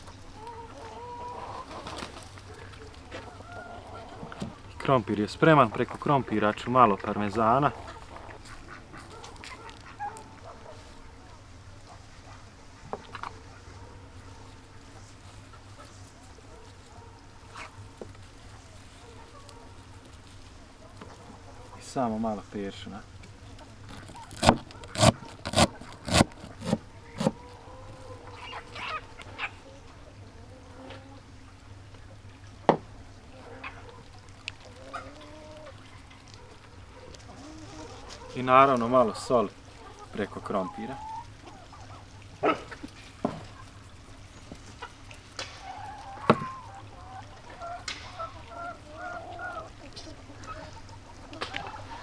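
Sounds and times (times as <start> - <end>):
chickens clucking: 0.0 - 52.0
knife chopping on wooden board: 24.3 - 27.4.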